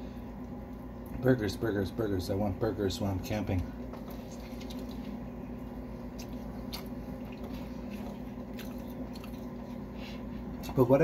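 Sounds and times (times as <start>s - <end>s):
man chewing food: 3.8s - 10.7s.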